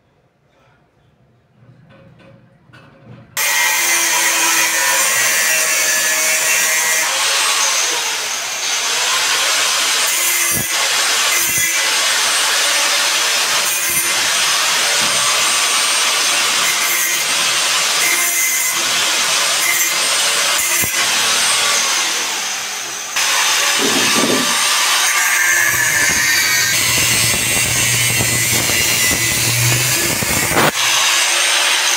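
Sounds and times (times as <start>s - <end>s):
angle grinder cutting metal: 3.4s - 31.9s
knocks: 23.7s - 24.6s.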